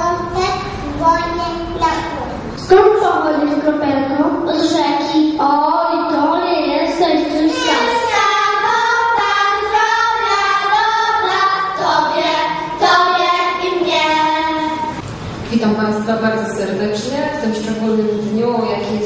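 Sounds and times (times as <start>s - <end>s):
children singing: 7.3s - 15.0s.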